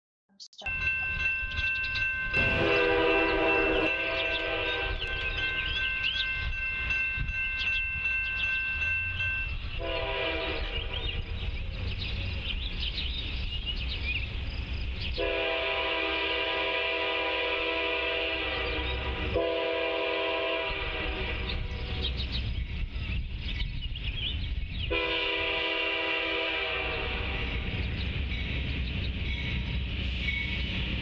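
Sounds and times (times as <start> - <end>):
birds chirping: 0.3 - 15.9, 18.1 - 31.0
train air horn blasts: 2.4 - 5.7, 9.8 - 11.2, 15.2 - 22.1, 24.9 - 27.8.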